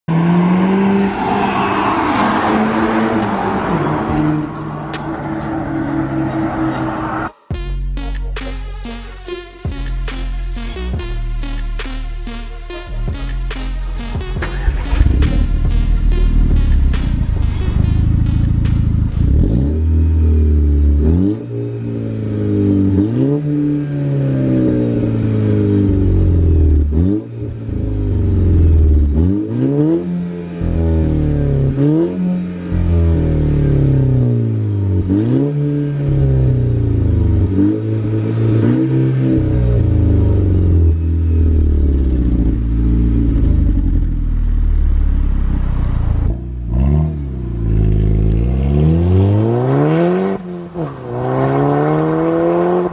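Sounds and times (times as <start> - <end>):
car engine revving: 0.0 - 7.6, 9.7 - 52.9
exhaust cracks: 14.2 - 19.9.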